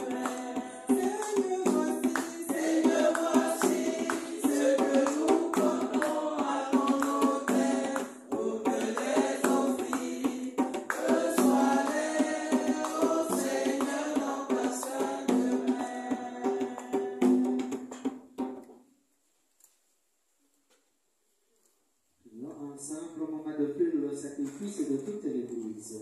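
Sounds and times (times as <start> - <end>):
voices singing a hymn: 0.0 - 17.7
drum: 0.0 - 18.6.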